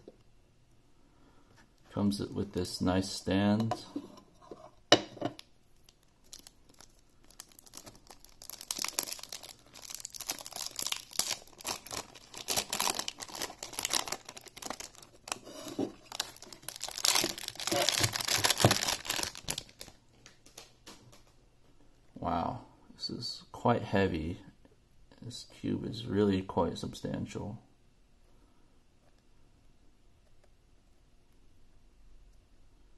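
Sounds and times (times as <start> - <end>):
plastic wrap crinkling and tearing: 5.8 - 21.3.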